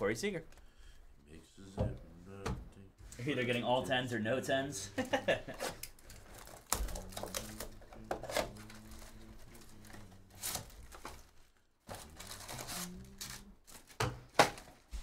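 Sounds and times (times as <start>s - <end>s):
plastic shrink-wrap crinkling: 5.6s - 14.9s.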